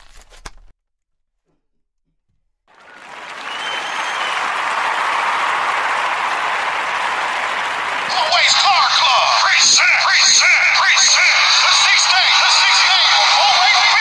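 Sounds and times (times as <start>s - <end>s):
crowd applause: 2.7s - 14.0s
hip-hop music: 8.0s - 14.0s.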